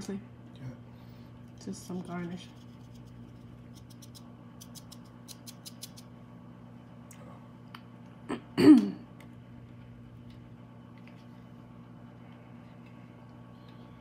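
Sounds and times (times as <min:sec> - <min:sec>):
steady low hum: 0:00.0 - 0:14.0
person clearing throat: 0:08.3 - 0:09.1.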